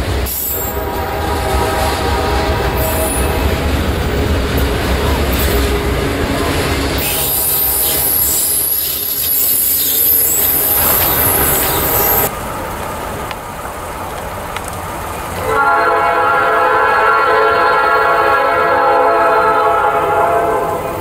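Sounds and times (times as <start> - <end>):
freight cars rolling past: 0.0 - 16.7
train wheels squealing: 0.2 - 0.8, 6.5 - 12.3
locomotive chime horn: 0.5 - 8.2, 10.9 - 12.3, 15.4 - 21.0.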